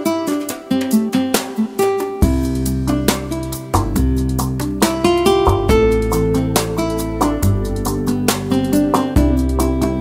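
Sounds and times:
acoustic guitar music: 0.0s - 10.0s
sustained bass line: 2.2s - 10.0s.

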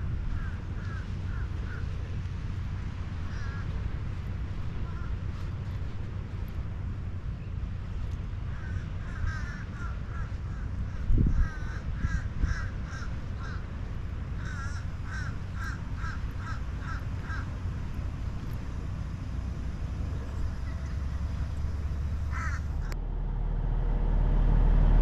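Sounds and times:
steady low rumble: 0.0s - 25.0s
bird calling: 0.3s - 2.0s, 3.3s - 3.8s, 8.5s - 23.0s.

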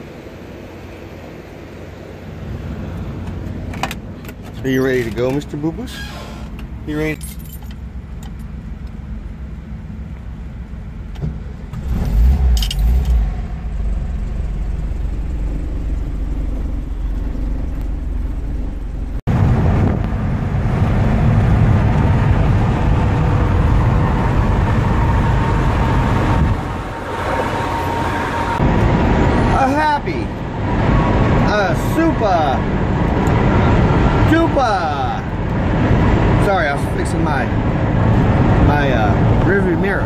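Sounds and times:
road noise in vehicle cab: 0.0s - 40.0s
keys jangling: 7.1s - 8.5s
engine starting and running: 11.0s - 29.9s.

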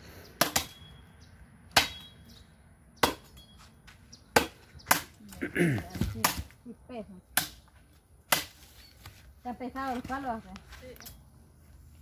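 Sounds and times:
machete chopping wooden pole: 0.4s - 0.8s, 1.7s - 2.2s, 3.0s - 3.4s, 4.3s - 5.2s, 5.8s - 6.6s, 7.3s - 7.7s, 8.3s - 8.7s.

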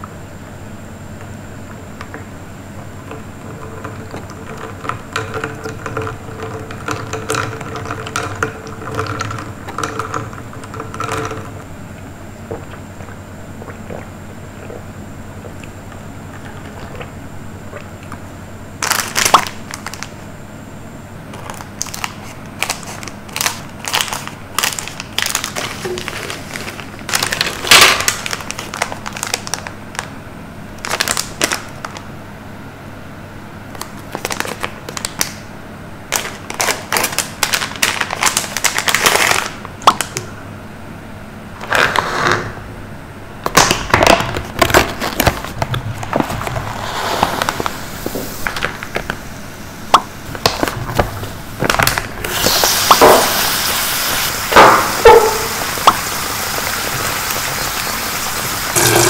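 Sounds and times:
food packaging crinkling: 18.8s - 20.2s, 21.3s - 30.2s, 30.8s - 32.1s, 33.8s - 35.4s, 36.1s - 40.2s, 43.5s - 49.4s, 50.2s - 59.0s.

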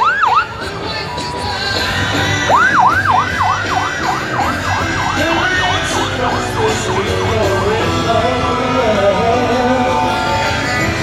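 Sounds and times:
fire engine siren yelping: 0.0s - 0.6s, 2.0s - 8.7s.

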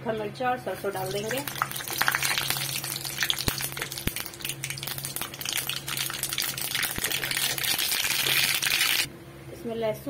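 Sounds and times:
pops and crackles: 1.0s - 9.1s
seeds sizzling in hot oil: 1.0s - 9.1s.

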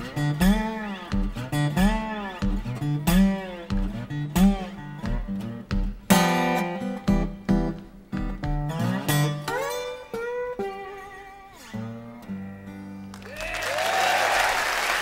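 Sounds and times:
blues guitar playing: 0.0s - 13.2s
audience applause: 13.1s - 15.0s.

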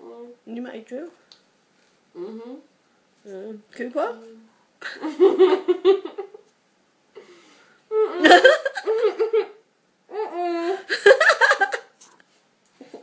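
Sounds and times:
person laughing: 8.1s - 9.6s, 10.6s - 12.0s.

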